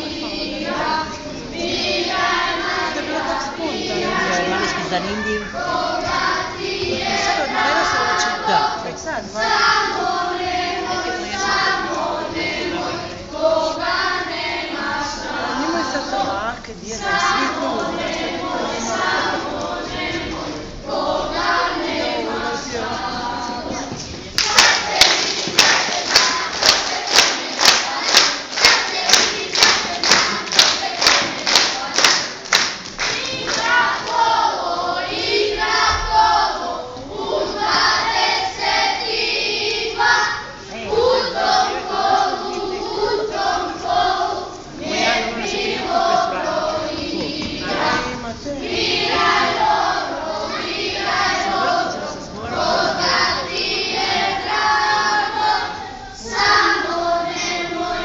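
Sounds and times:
young voices singing in unison: 0.0s - 58.0s
dancers beating time: 23.6s - 35.4s.

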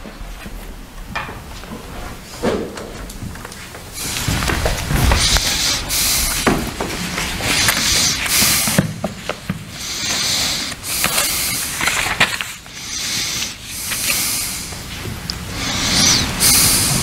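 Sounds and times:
paper rustling: 10.9s - 12.7s.

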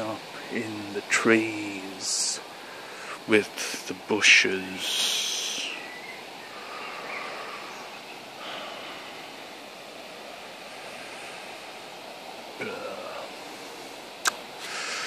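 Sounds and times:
breeze rustling trees: 0.0s - 15.0s
faint bird chirps: 4.8s - 9.3s.

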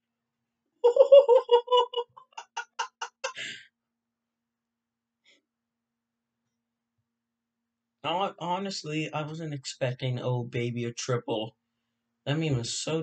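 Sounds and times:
person laughing: 0.9s - 3.6s.

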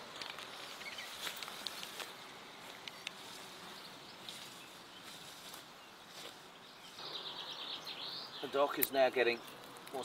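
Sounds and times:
grass and leaves rustling: 0.0s - 10.0s
small crackling clicks: 0.1s - 2.1s, 2.7s - 3.2s, 8.7s - 10.0s.

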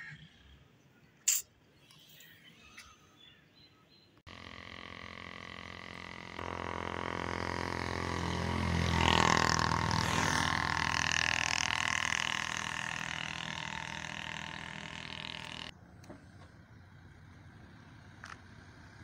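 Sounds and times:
vehicle engine droning past: 4.3s - 15.7s.

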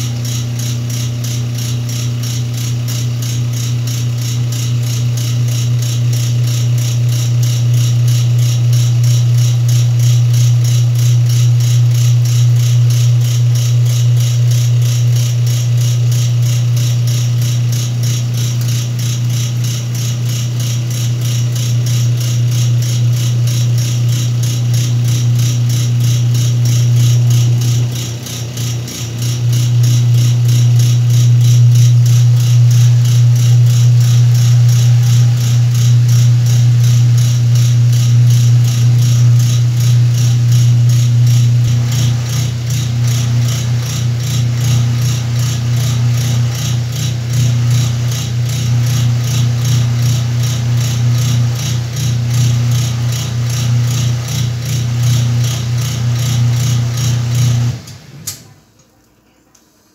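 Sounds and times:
washing machine running: 0.0s - 59.0s
fast repeating rattle: 10.6s - 38.1s.

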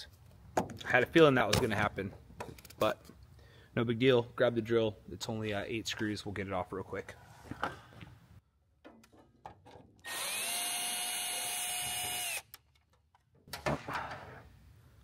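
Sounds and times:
cordless drill motor running: 10.0s - 12.5s.

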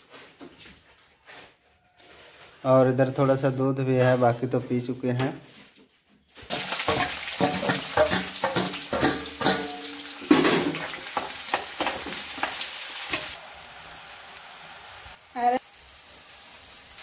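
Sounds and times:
spatula scraping a pan: 6.5s - 13.4s
vegetables sizzling in hot oil: 6.5s - 17.0s.

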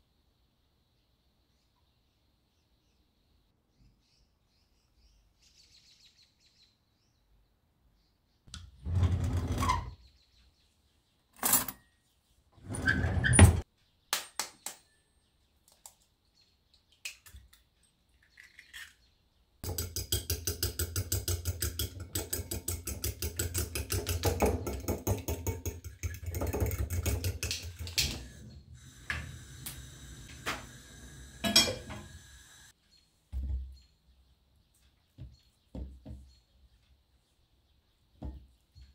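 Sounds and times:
fork beating in glass bowl: 19.6s - 28.0s
dishes knocking and clinking: 19.6s - 28.4s, 31.4s - 32.2s.

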